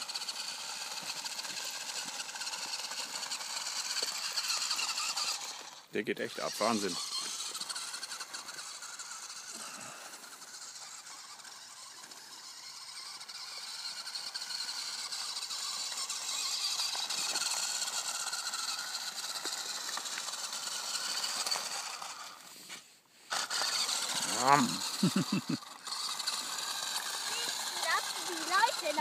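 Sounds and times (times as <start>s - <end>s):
toy tractor motor whining: 0.0s - 29.0s.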